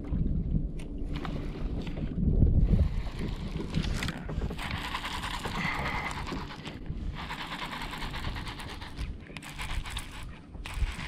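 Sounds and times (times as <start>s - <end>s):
fishing reel whirring: 2.9s - 11.0s.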